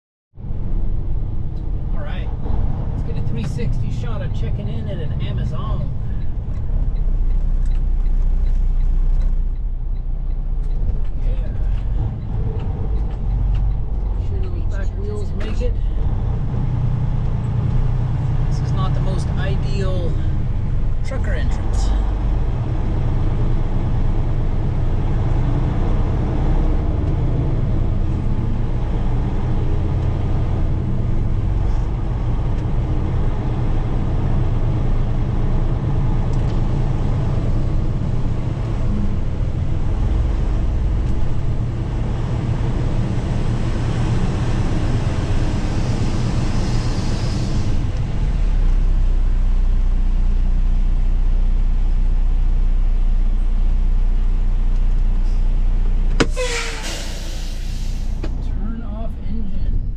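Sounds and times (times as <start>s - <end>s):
truck diesel engine running: 0.4s - 59.9s
air brake hiss: 46.0s - 47.8s, 56.3s - 58.3s.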